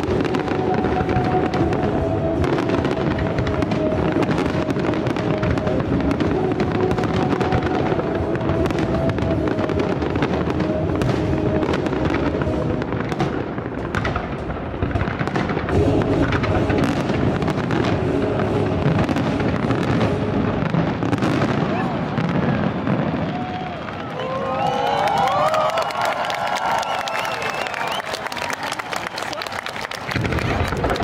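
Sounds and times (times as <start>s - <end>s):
music playing: 0.0s - 23.6s
fireworks bangs and crackles: 0.0s - 31.0s.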